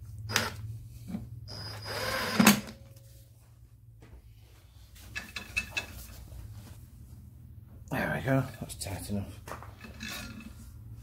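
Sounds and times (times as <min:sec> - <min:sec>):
impact gun whining: 0:01.5 - 0:02.8.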